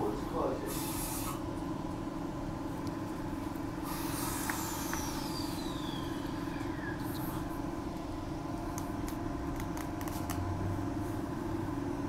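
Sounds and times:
electric train humming: 0.0 - 9.5
air hiss: 0.6 - 1.4, 3.8 - 6.4.

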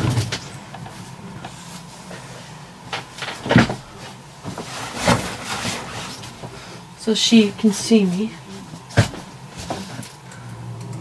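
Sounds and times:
knocks and thuds of shutting: 3.0 - 3.9.

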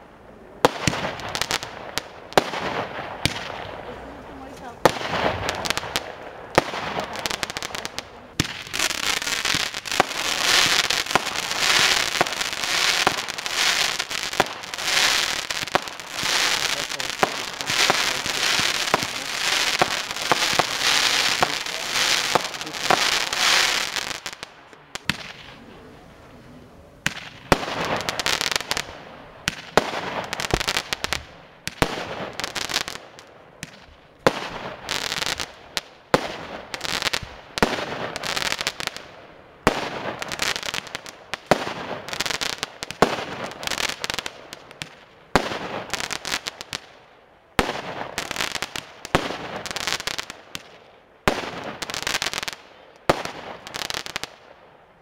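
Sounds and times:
firework bursts: 0.0 - 26.4, 27.0 - 54.5
firework launch reports: 0.0 - 35.5.

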